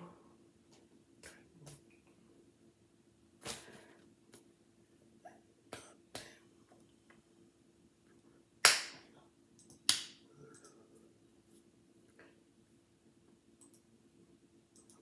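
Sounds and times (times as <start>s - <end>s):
hands clapping and slapping: 5.7s - 6.4s, 8.6s - 9.1s, 9.9s - 10.2s.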